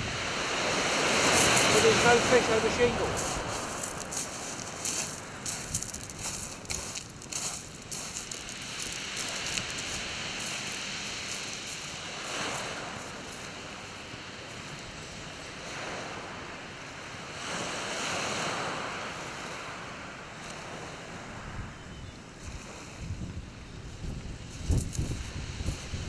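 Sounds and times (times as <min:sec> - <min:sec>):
waves breaking on shingle: 0:00.3 - 0:13.9.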